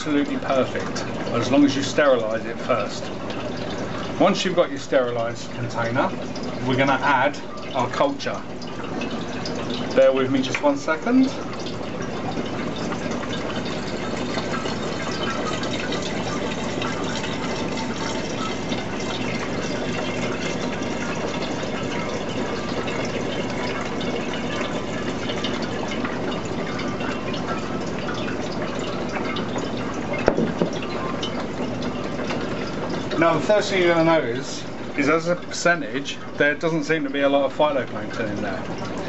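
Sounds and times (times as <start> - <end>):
liquid pouring into glass jug: 0.0 - 39.0
knock: 30.3 - 30.8.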